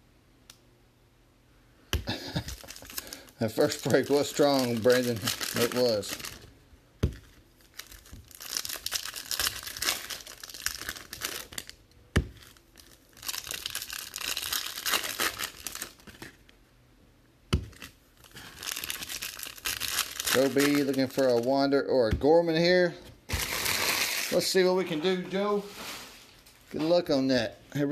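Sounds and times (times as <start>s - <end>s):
foil packs tearing and crinkling: 2.1s - 6.4s, 7.2s - 16.3s, 17.7s - 21.7s, 23.3s - 24.6s.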